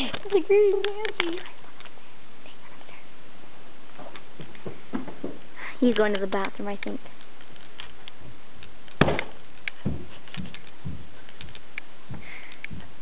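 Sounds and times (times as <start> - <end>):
sharp thump: 9.0 - 10.0
soft dull thuds: 9.0 - 11.2.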